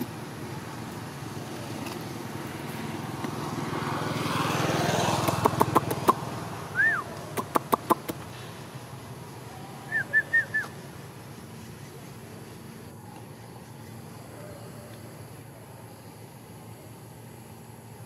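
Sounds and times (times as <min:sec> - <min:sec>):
engine passing: 0:00.0 - 0:18.0
sharp clicks: 0:07.2 - 0:08.3.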